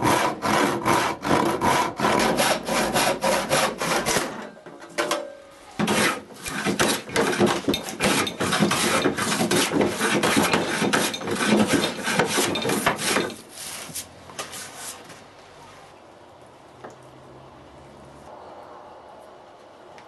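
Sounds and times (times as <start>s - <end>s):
hand plane scraping wood: 0.0s - 4.3s, 5.8s - 15.0s.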